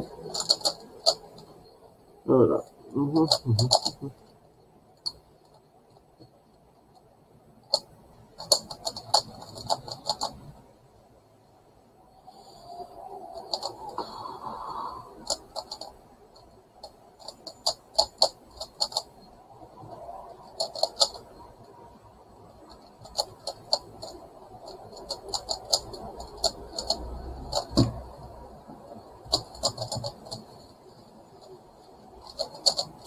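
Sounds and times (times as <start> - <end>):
plastic puzzle clicking: 0.2 - 1.4, 3.2 - 4.1, 7.7 - 10.4, 22.8 - 28.0, 32.2 - 33.0.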